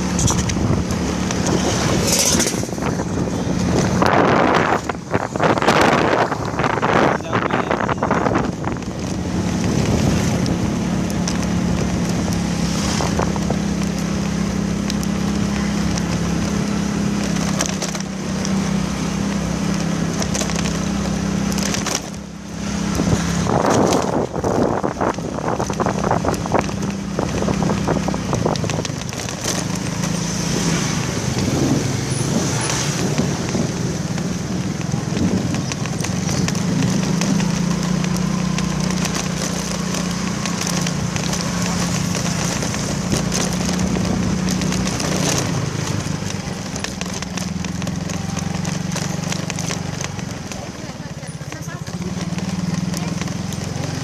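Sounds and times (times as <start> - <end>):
wind rushing over microphone: 0.0 - 15.3, 19.4 - 39.2
motorcycle engine running: 0.0 - 54.0.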